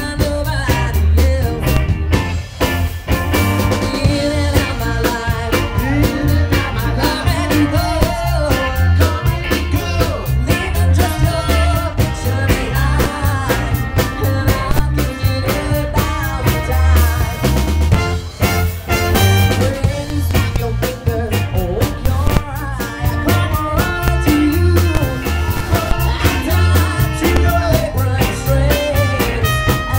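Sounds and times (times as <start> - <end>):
woman singing lead: 0.0 - 2.1, 3.6 - 17.8, 19.5 - 29.9
drum kit beat: 0.0 - 29.9
electric bass guitar: 0.0 - 29.9
trumpet: 16.7 - 20.6, 22.0 - 29.9
saxophone: 16.7 - 20.7, 22.2 - 29.9.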